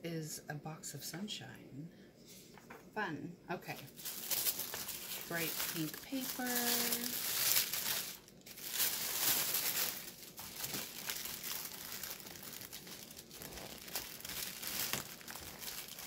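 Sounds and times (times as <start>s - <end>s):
tissue paper rustling: 3.7s - 16.0s.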